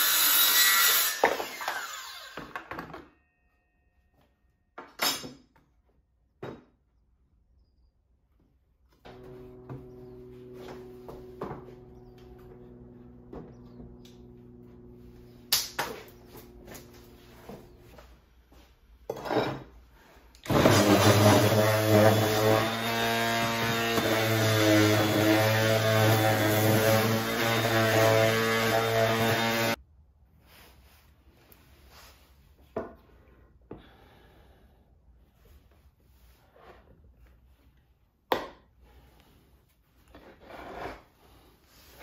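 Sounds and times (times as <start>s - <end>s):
orbital sander humming: 9.1s - 17.9s, 20.5s - 29.8s.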